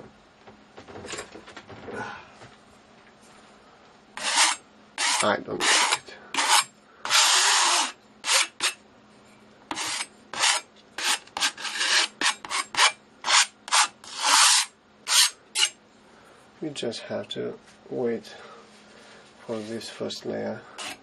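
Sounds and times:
painting knife scraping on canvas: 4.2s - 8.8s, 9.7s - 15.8s, 20.8s - 21.0s.

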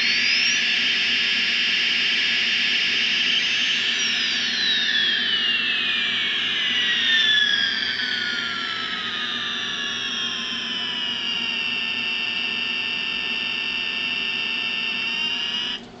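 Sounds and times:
electronic jet whoosh with whistle: 0.0s - 15.8s.

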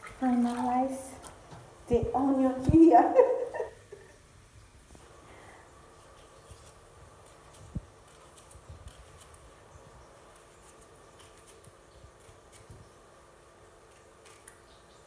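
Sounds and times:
faint steady hum: 0.0s - 15.0s
knife slicing onion: 6.0s - 15.0s.

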